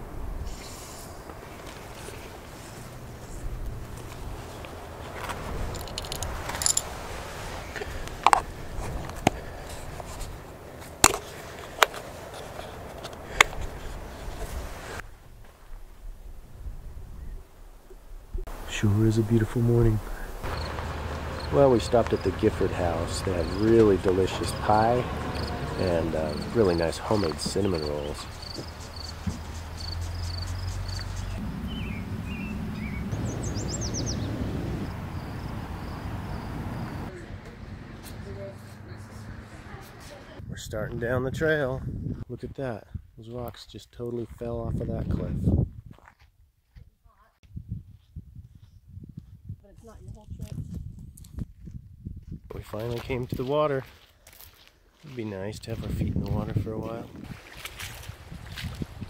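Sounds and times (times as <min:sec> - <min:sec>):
steady low hiss: 0:00.0 - 0:37.1
low outdoor rumble: 0:00.0 - 0:40.4
songbird chirping: 0:17.0 - 0:40.4.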